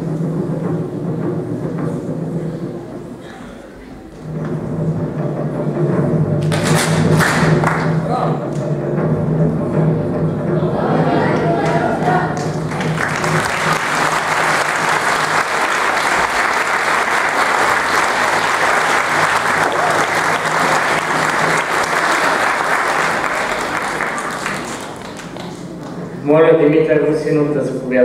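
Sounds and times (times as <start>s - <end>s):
audience applauding: 6.4s - 8.0s, 11.2s - 26.1s
voices: 10.5s - 12.8s.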